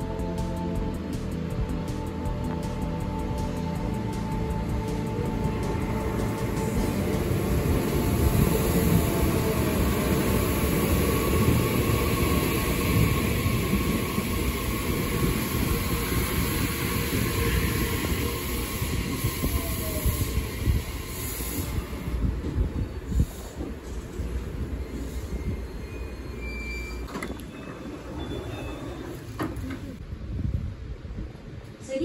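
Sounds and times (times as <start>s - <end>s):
electric train braking to a stop: 3.4s - 30.0s.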